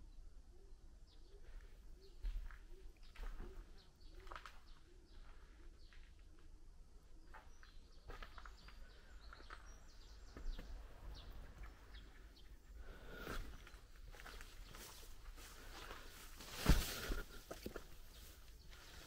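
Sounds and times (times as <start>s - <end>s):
faint bird chirps: 0.0s - 19.0s.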